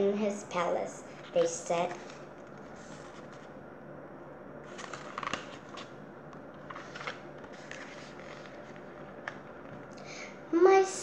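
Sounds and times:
book pages rustling: 1.1s - 3.5s, 4.6s - 9.9s.

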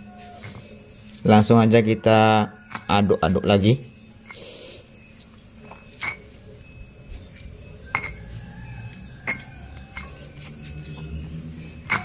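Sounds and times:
stone pestle clinking in mortar: 7.8s - 8.4s, 9.2s - 10.3s, 11.8s - 12.0s.

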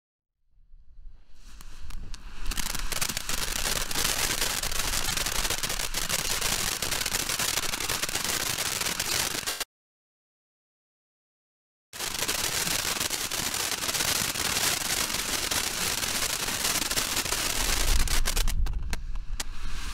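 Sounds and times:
firework fountain hissing: 1.4s - 9.7s, 12.0s - 19.9s
firework small pops: 1.5s - 9.7s, 12.1s - 19.9s.

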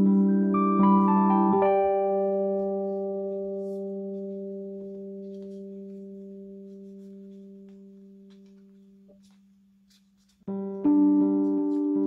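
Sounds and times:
paper crinkling: 3.7s - 10.5s.

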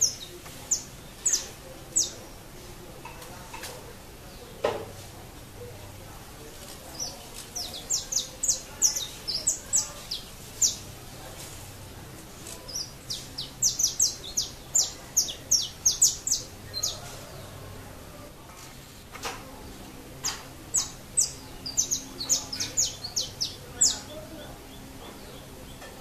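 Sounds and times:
finch singing sharp notes: 0.0s - 2.2s, 7.0s - 11.0s, 12.6s - 17.0s, 20.3s - 25.9s.

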